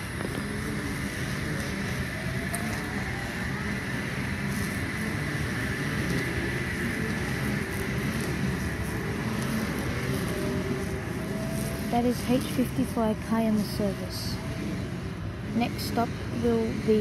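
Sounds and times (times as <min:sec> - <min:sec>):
faint rising whine: 0:00.0 - 0:17.0
train motors and wheels running: 0:00.0 - 0:17.0.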